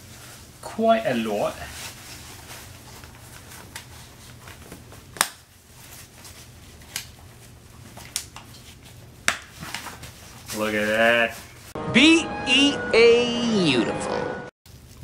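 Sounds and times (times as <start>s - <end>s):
fabric rustling: 0.0s - 8.0s.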